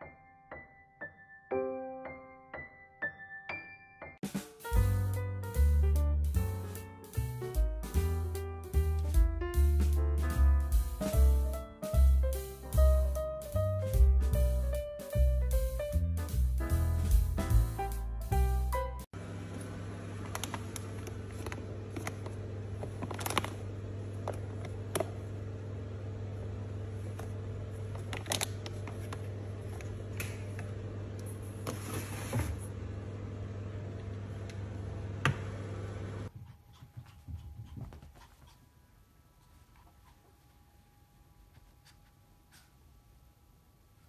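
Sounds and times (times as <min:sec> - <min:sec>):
jars and packets clicking and rustling: 0:20.3 - 0:23.6.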